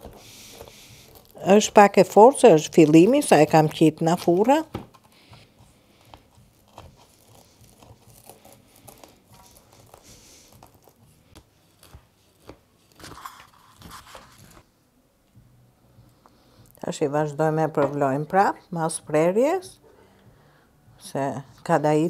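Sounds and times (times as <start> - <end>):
knife cutting crunchy pastry: 5.9 - 14.6.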